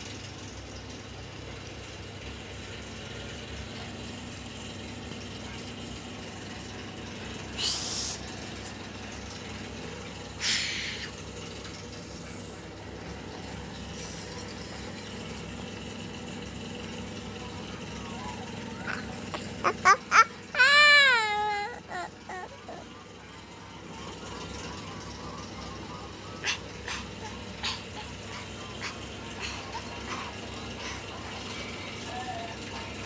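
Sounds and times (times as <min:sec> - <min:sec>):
steady background hum: 0:00.0 - 0:33.0
toddler making shh sounds: 0:07.5 - 0:08.7.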